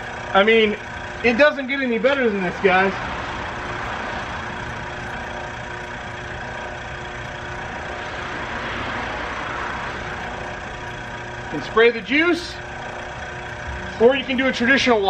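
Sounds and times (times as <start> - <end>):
electric pump motor hum: 0.0 - 15.0.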